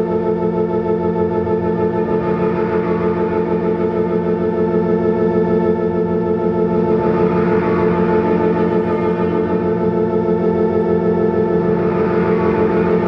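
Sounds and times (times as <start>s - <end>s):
pulsing organ-like chord drone: 0.0s - 13.0s.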